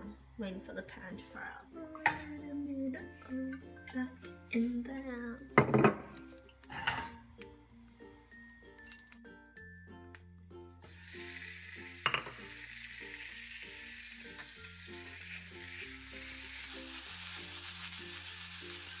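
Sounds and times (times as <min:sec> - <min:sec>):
chicken sizzling in hot oil: 0:10.8 - 0:19.0.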